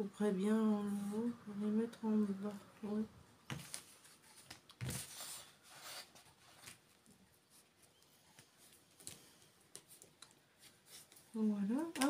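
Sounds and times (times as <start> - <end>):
paper rustling on a table: 3.5 - 12.0.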